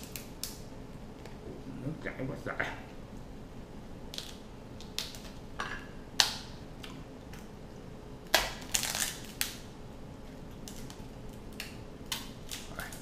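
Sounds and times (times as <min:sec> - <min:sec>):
crab shell cracking: 0:00.0 - 0:00.6, 0:04.1 - 0:05.4, 0:08.2 - 0:09.6, 0:10.6 - 0:13.0.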